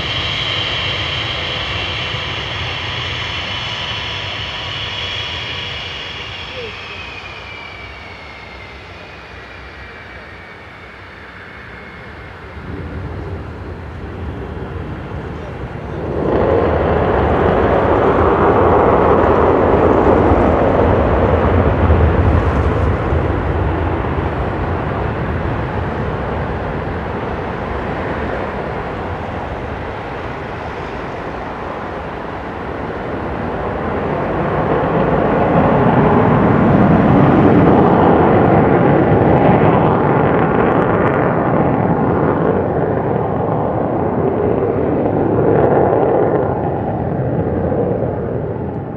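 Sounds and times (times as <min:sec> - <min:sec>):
jet engine roar: 0:00.0 - 0:48.9.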